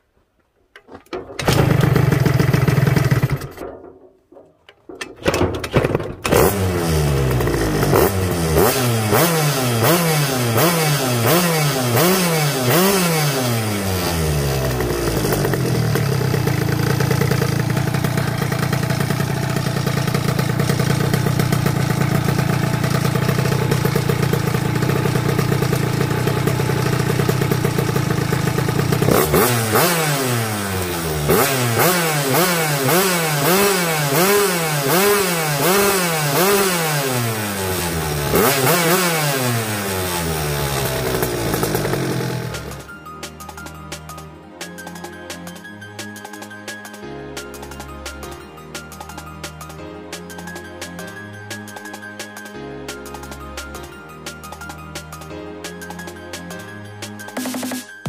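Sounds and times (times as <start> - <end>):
two-stroke scooter engine revving: 1.4 - 3.7, 5.7 - 42.9.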